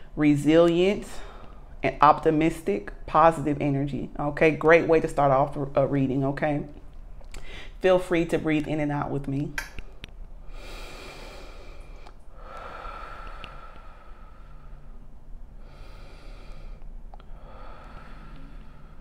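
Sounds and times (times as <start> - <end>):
woman breathing deeply: 1.1 - 1.8, 7.4 - 7.8, 10.4 - 19.0.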